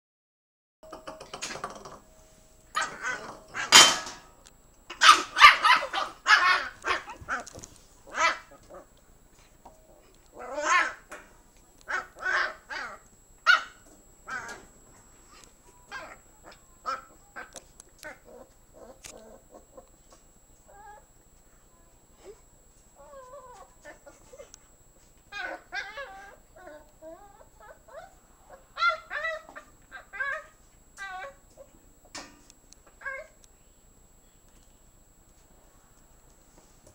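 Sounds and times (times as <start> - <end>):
puppy barking and yipping: 2.8 - 4.0, 5.0 - 7.4, 8.1 - 8.6, 11.9 - 14.6, 25.3 - 28.1, 28.8 - 31.4
bowl clattering on tile floor: 3.6 - 4.3.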